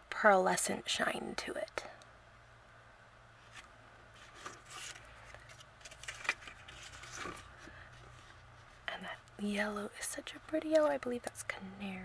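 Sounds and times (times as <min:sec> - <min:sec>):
paper rustling and tapping: 0:03.6 - 0:07.5.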